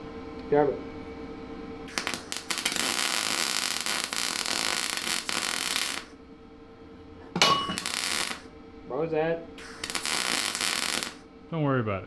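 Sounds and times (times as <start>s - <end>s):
welder arc crackling: 1.9s - 6.2s, 7.8s - 8.5s, 9.6s - 11.3s.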